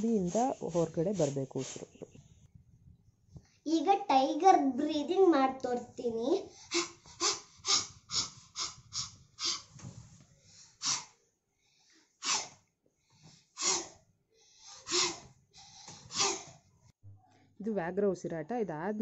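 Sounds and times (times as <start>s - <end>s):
child panting: 6.3s - 9.8s, 10.5s - 11.2s, 12.2s - 12.6s, 13.2s - 16.6s
child forceful exhalations: 6.4s - 9.8s, 12.2s - 12.6s, 13.2s - 16.6s.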